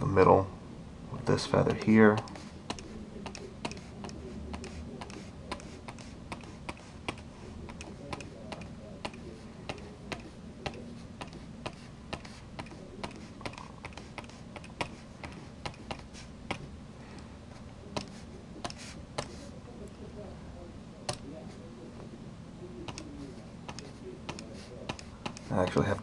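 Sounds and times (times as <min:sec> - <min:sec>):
low steady hum: 0:00.0 - 0:26.0
stylus tapping on tablet: 0:01.8 - 0:16.6.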